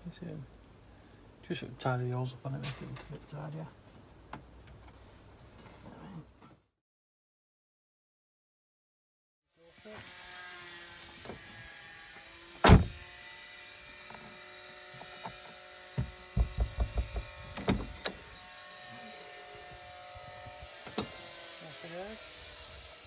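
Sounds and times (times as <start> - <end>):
loud knock: 16.0 - 17.4.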